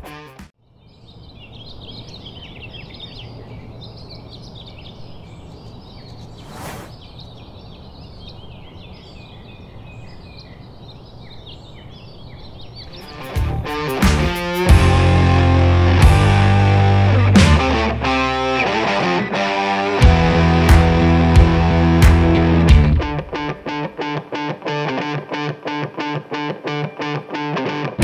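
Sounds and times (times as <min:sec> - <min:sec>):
songbirds chirping and singing: 0:00.6 - 0:20.6
brief swish: 0:06.4 - 0:07.0.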